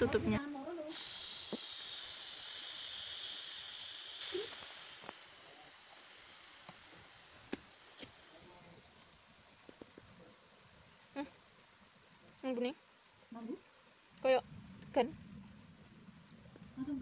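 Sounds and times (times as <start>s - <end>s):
gas hissing from bottle cap: 0.9s - 11.8s.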